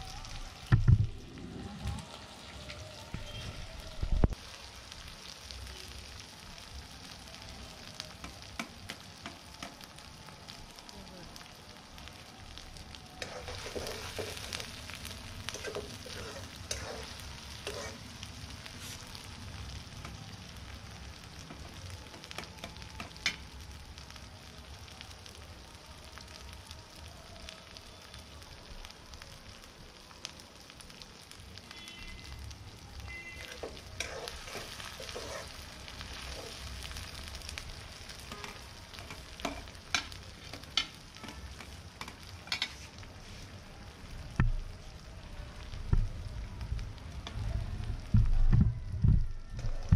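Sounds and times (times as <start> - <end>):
onions sizzling in oil: 0.0 - 49.9
metal ladle scraping a wok: 13.2 - 14.6, 15.5 - 18.0, 33.5 - 35.7.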